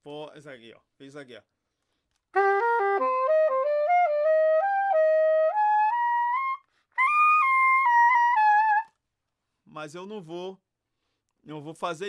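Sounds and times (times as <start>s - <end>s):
soprano saxophone playing: 2.3s - 9.0s.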